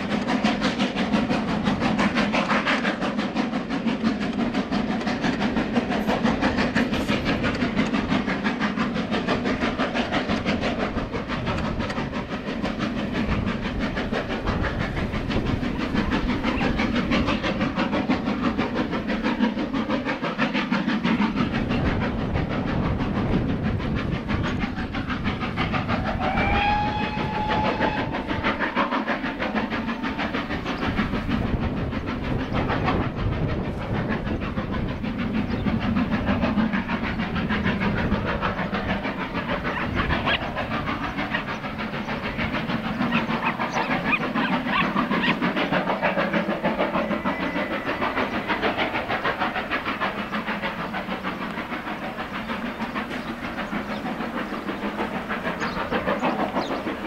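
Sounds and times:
steam locomotive exhaust barking: 0.0s - 57.0s
steam whistle: 26.0s - 29.1s.

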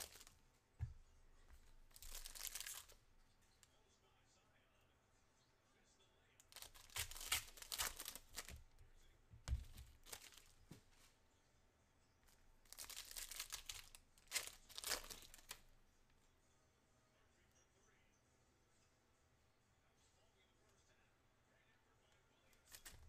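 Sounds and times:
foil wrapper tearing and crinkling: 0.0s - 0.3s, 1.9s - 3.0s, 6.5s - 8.6s, 9.8s - 10.5s, 12.7s - 15.6s.

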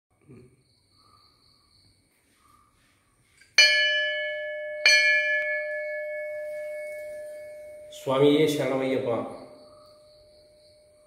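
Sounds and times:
metal temple bell ringing: 3.6s - 9.6s.

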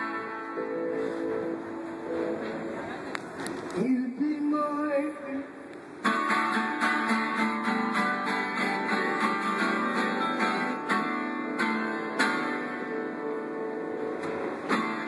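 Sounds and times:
acoustic guitar strummed: 0.0s - 2.6s, 6.0s - 15.0s.

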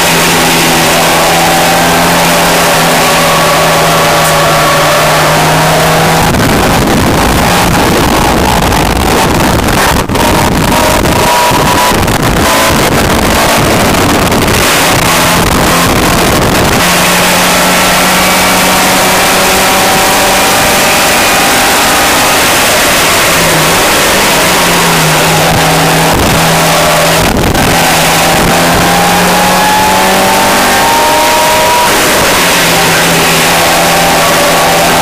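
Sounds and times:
car engine from inside cabin: 0.0s - 35.0s.

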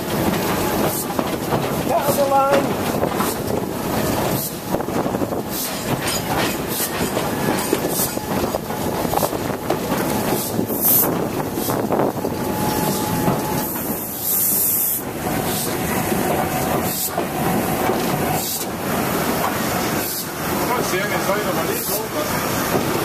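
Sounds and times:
train carriage rumble on rails: 0.0s - 23.0s
steam hiss bursts: 4.1s - 8.3s, 10.2s - 23.0s.

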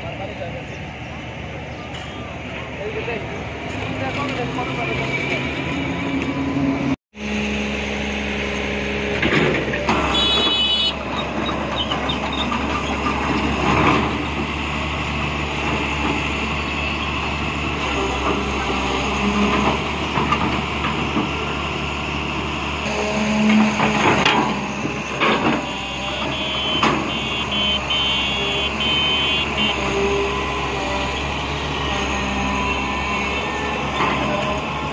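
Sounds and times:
excavator diesel engine running: 0.0s - 34.9s
knocks and clanks: 23.5s - 25.7s, 26.3s - 27.2s.

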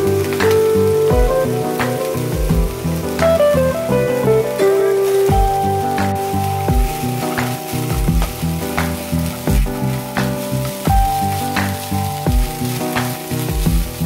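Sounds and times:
background music with steady beat: 0.0s - 14.0s
fried rice sizzling in a pan: 0.0s - 14.0s.

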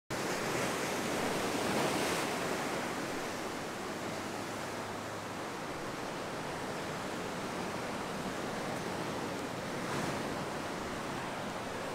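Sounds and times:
sea surf on rocky shore: 0.1s - 11.9s.

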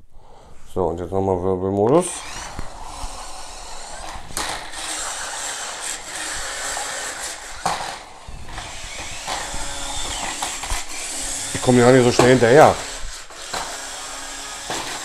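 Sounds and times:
small electric motors whining: 2.0s - 15.0s
plastic tyres scuffing on floor: 4.0s - 10.9s.

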